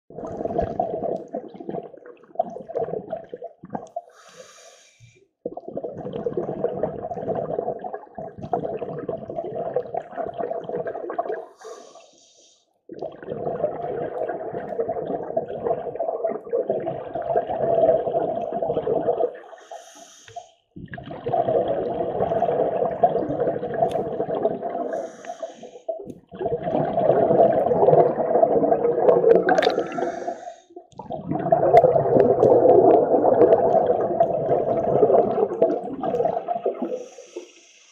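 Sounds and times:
regulator inhale hiss: 4.1s - 5.2s, 11.6s - 12.6s, 19.6s - 20.5s, 24.9s - 25.9s, 29.8s - 30.7s, 36.9s - 37.9s
exhaust bubbles rushing: 26.3s - 30.2s, 31.0s - 36.9s.

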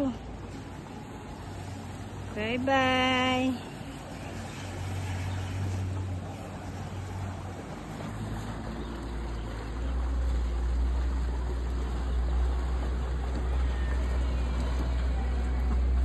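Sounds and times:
boat engine rumbling: 0.0s - 16.0s.

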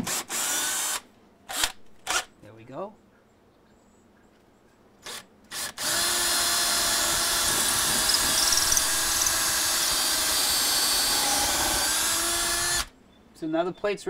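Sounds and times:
power drill drilling into wood: 0.0s - 2.2s, 5.0s - 12.9s.

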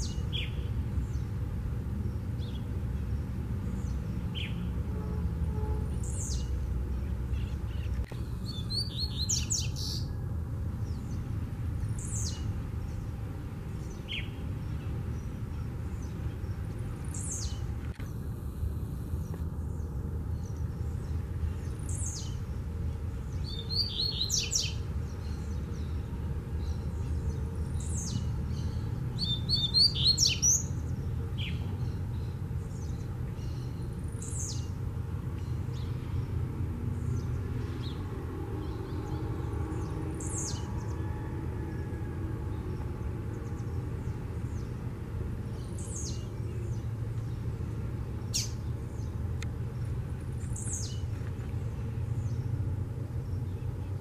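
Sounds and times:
bird chirping phrases: 2.0s - 4.8s, 5.9s - 10.2s, 13.7s - 18.2s, 23.2s - 34.8s, 45.5s - 49.2s
bird singing downward notes: 26.7s - 30.8s.

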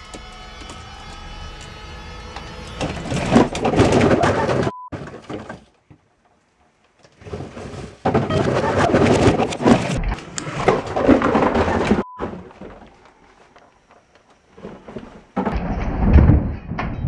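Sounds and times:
boxes and shoes clattering down: 2.8s - 6.1s, 7.0s - 13.1s, 14.4s - 15.6s.

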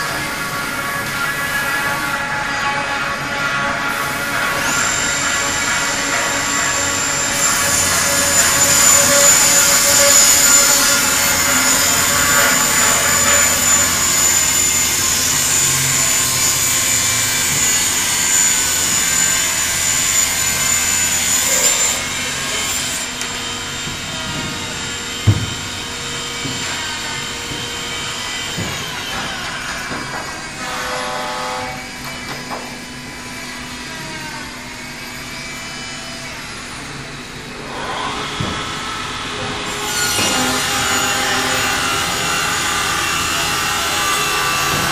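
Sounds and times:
saw machine trimming door edges: 0.0s - 44.9s
dust extraction: 3.2s - 30.8s.

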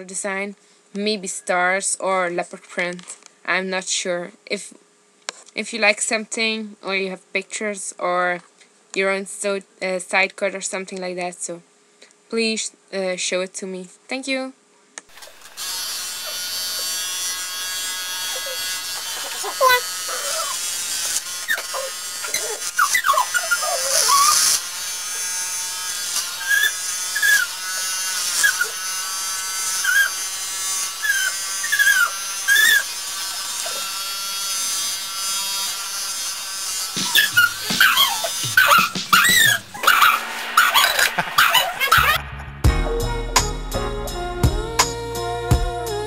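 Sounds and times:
electric hair clippers buzzing: 15.1s - 42.2s
short high sliding tones: 37.0s - 44.9s.

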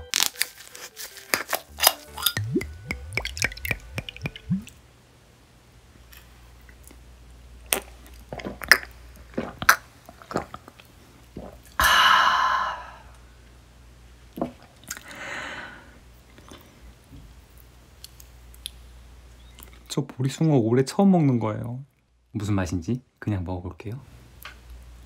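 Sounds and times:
liquor sipped and swallowed: 2.2s - 4.8s, 9.6s - 11.8s
sharp wet mouth clicks: 2.2s - 4.8s
breathy exhale: 11.8s - 13.2s, 15.0s - 16.0s.

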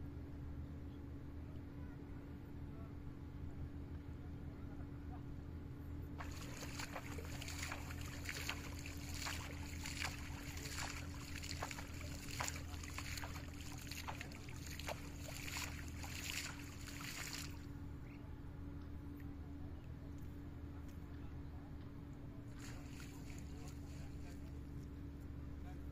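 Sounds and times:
steady low hum: 0.0s - 25.9s
water splashing and sloshing: 6.2s - 17.7s, 22.5s - 24.5s.

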